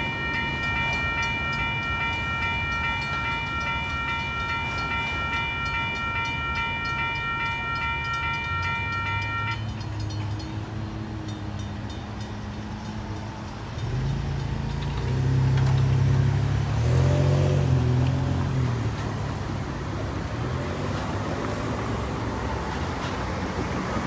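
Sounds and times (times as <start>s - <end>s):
steady traffic noise: 0.0s - 24.0s
vehicle engine passing by: 13.9s - 24.0s.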